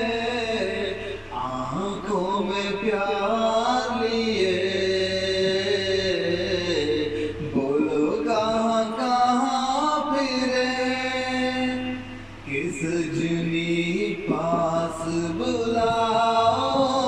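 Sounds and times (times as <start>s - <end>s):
man singing slow melody: 0.0s - 17.0s.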